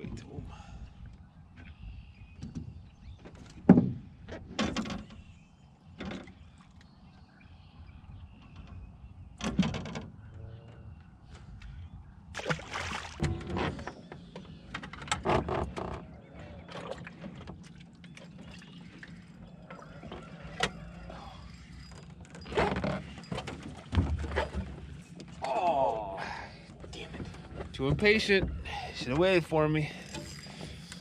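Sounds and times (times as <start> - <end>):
knocks and clatter in metal boat: 2.4 - 5.4, 8.4 - 10.4, 13.2 - 18.7, 21.8 - 25.4, 26.8 - 30.9.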